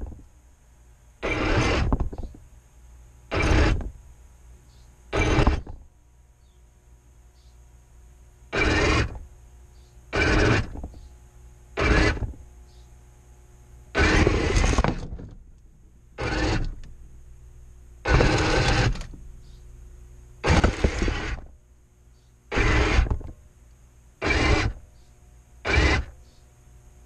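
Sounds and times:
electric motors whirring: 1.2s - 2.3s, 3.3s - 3.9s, 5.1s - 5.8s, 8.5s - 9.2s, 10.1s - 11.0s, 11.8s - 12.4s, 13.9s - 15.4s, 16.2s - 17.0s, 18.0s - 19.3s, 20.4s - 21.6s, 22.5s - 23.3s, 24.2s - 24.8s, 25.6s - 26.2s.

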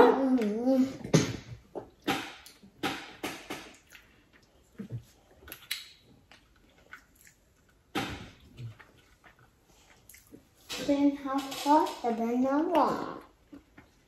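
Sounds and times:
sucking and chewing: 3.7s - 10.7s.

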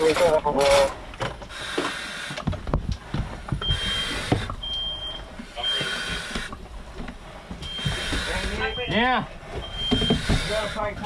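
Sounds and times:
rushing breaths: 1.0s - 11.0s
smoke alarm beeping: 3.6s - 6.2s, 7.6s - 10.5s.

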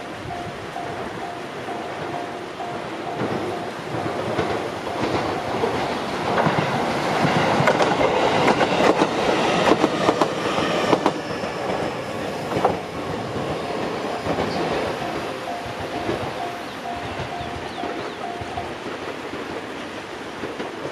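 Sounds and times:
crossing warning bell: 0.0s - 20.6s
train wheels clattering: 0.0s - 20.9s.

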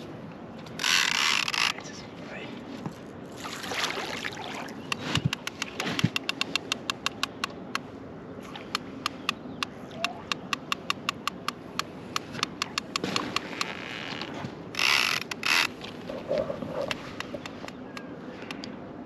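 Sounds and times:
fishing reel ticking: 0.8s - 1.8s, 14.8s - 15.7s.

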